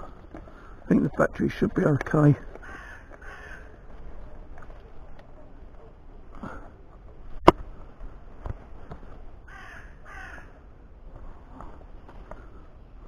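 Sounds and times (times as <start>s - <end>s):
crow cawing: 2.6s - 3.8s, 9.5s - 10.6s.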